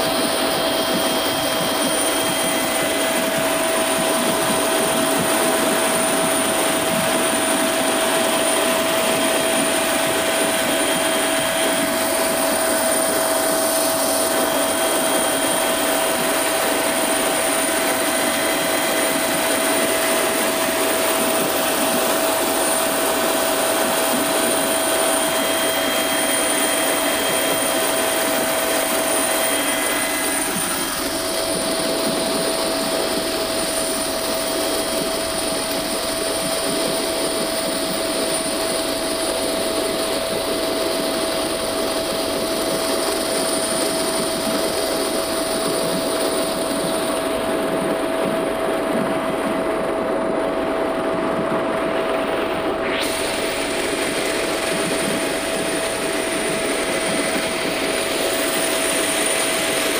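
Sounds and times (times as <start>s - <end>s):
helicopter rotor and turbine rushing: 0.0s - 59.9s
high steady whining tones: 0.0s - 59.9s.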